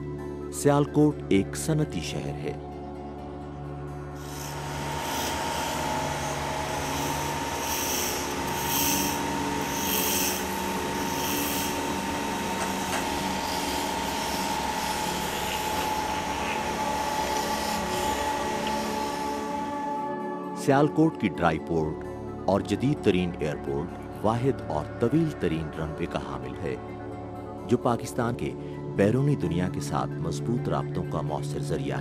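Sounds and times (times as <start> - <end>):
tool scraping wood on lathe: 4.2 - 19.6
workshop machinery hum: 4.2 - 20.1.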